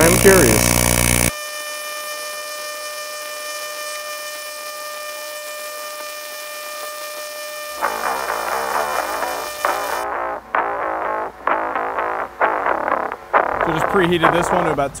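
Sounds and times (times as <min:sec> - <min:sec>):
welding arc buzzing: 0:00.0 - 0:14.8
guitar music: 0:07.8 - 0:15.0.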